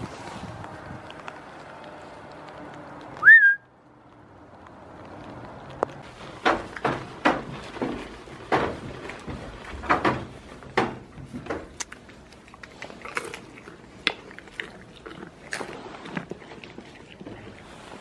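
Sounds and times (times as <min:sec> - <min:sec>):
goats crunching food: 0:00.0 - 0:18.0
rising whistle: 0:03.2 - 0:03.7.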